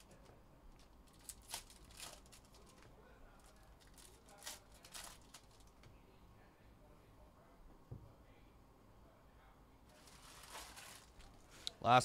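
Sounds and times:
trading cards rustling: 0:00.8 - 0:02.8, 0:03.4 - 0:05.7, 0:10.0 - 0:11.4
foil wrapper rustling: 0:00.8 - 0:05.7, 0:09.9 - 0:11.4.

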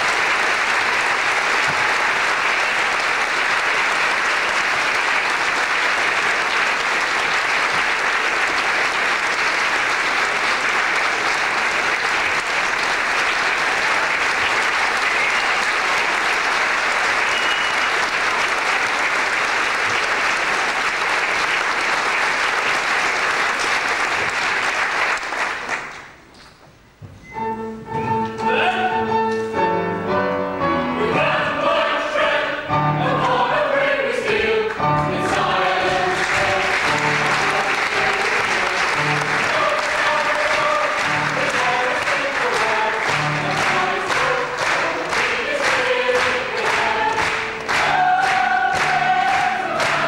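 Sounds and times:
audience applauding: 0:00.0 - 0:26.3, 0:34.6 - 0:50.0
piano playing: 0:27.2 - 0:50.0.

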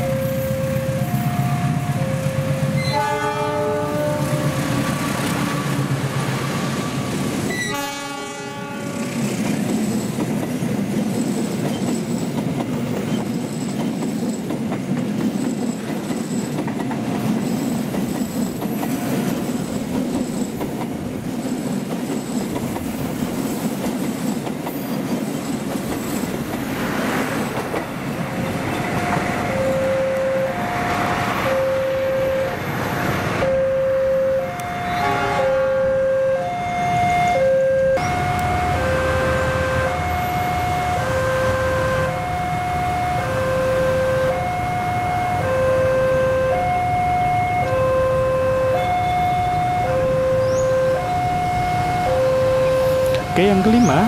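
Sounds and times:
train horn: 0:00.0 - 0:05.9, 0:06.8 - 0:09.1, 0:28.7 - 0:32.5, 0:33.4 - 0:53.8
wheel and rail clatter: 0:09.2 - 0:29.8.

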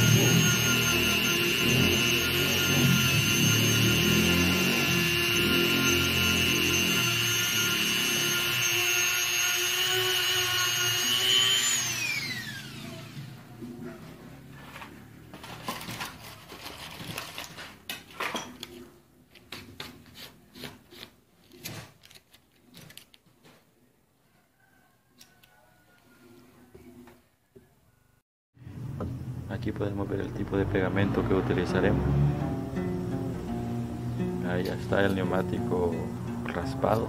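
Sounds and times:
rotary tool spinning down: 0:00.0 - 0:13.4
rotary tool whining: 0:00.0 - 0:16.2.

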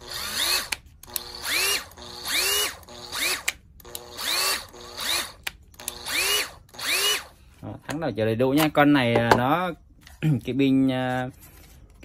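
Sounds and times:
impact wrench motor whining: 0:00.0 - 0:07.4.

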